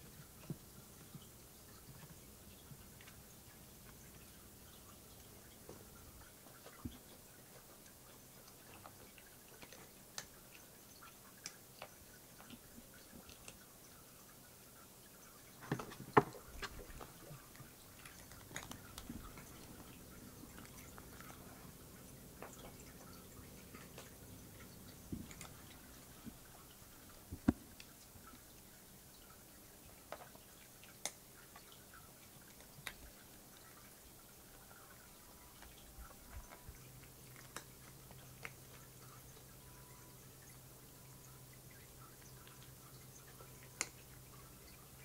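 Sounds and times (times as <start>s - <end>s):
faint clicks and taps: 0.0s - 39.7s, 41.7s - 45.0s.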